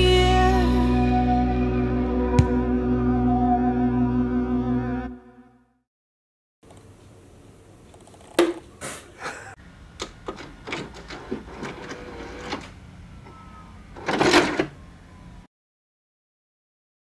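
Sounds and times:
video cassette recorder ejecting tape: 10.0 - 12.8, 14.0 - 14.8
mechanical clicks and clunks: 10.0 - 13.4, 14.0 - 14.8.

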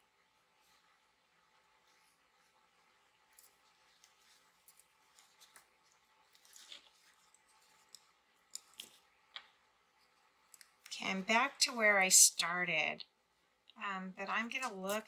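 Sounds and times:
yarn rustling: 1.7 - 9.1.

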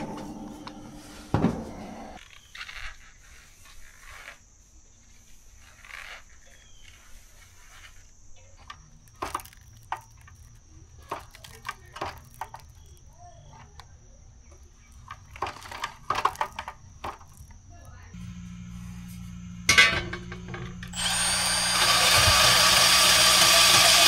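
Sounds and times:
low hum: 0.0 - 2.2, 18.2 - 23.5.

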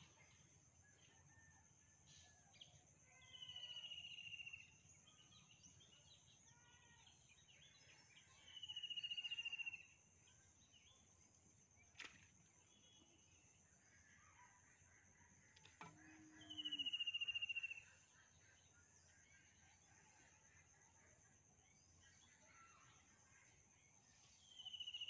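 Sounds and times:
bird calls: 14.2 - 19.7.

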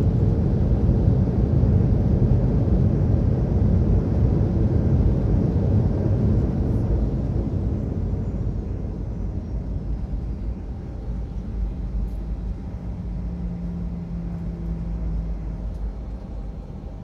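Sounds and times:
jet engines and wheels rumbling: 0.0 - 17.0
steady hum: 5.0 - 17.0.

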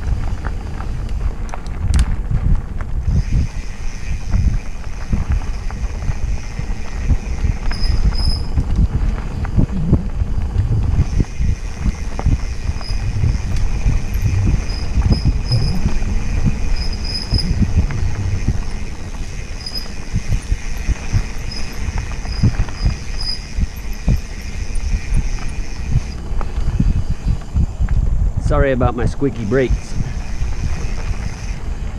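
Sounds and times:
bike tyres and frame rumbling: 0.0 - 31.9
faint high whine: 3.0 - 27.6.

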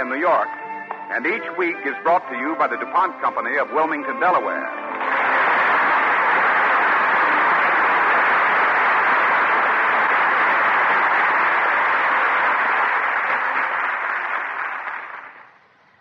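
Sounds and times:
audience applauding: 4.3 - 15.7.

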